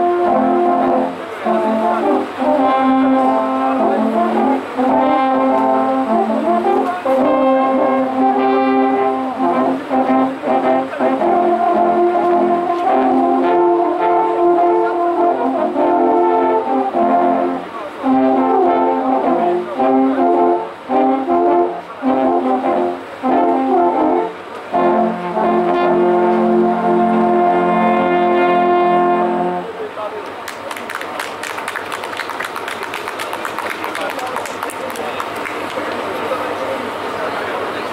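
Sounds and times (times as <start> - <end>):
alphorns playing chords: 0.0 - 29.8.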